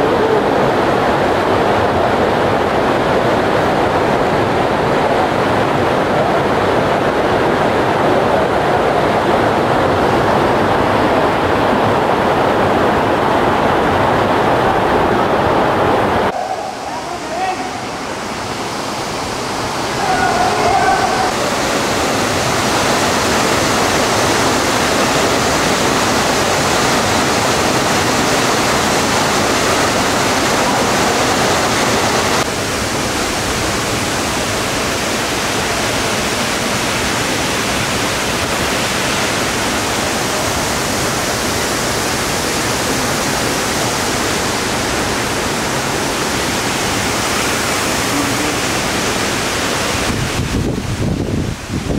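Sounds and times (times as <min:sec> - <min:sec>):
waterfall rushing: 0:00.0 - 0:51.9
stream running over stones: 0:17.0 - 0:50.7.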